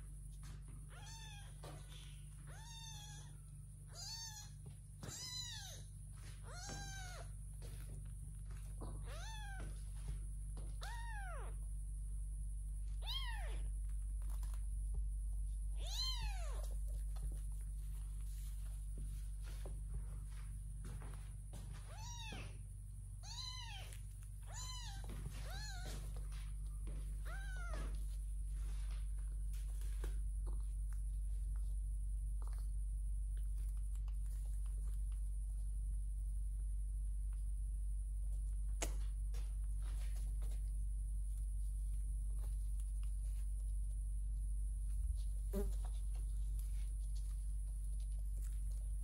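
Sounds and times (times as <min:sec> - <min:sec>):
kitten meowing: 0:00.9 - 0:01.8, 0:02.5 - 0:05.8, 0:06.4 - 0:07.3, 0:09.0 - 0:09.7, 0:10.8 - 0:11.6, 0:13.0 - 0:13.7, 0:15.8 - 0:16.7, 0:21.9 - 0:22.6, 0:23.2 - 0:26.0, 0:27.2 - 0:27.9.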